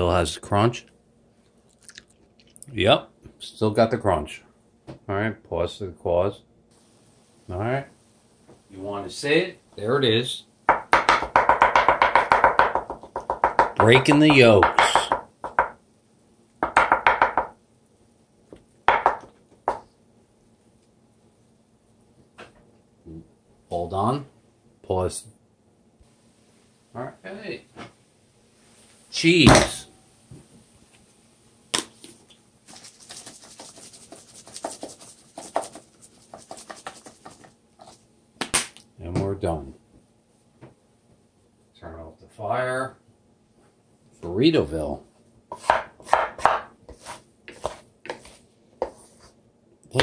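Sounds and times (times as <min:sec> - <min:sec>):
utensil tapping a pan: 0:10.7 - 0:15.8.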